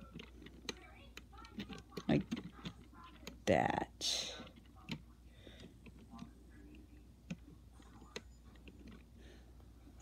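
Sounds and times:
plastic pieces clicking: 0:00.0 - 0:03.4.

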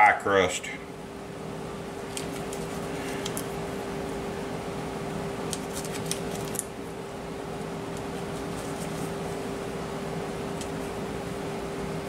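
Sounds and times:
steady low hum: 0:00.0 - 0:12.0
paper wrapper crinkling: 0:05.5 - 0:06.7.

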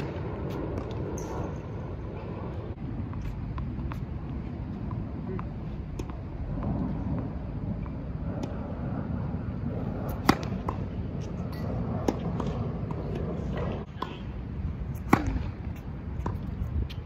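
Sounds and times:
tennis ball bouncing on court: 0:00.0 - 0:01.2, 0:03.1 - 0:08.6, 0:10.1 - 0:14.3, 0:14.9 - 0:17.0
low steady rumble: 0:00.1 - 0:16.9
tennis racket hitting ball: 0:10.1 - 0:10.9, 0:15.0 - 0:15.6.

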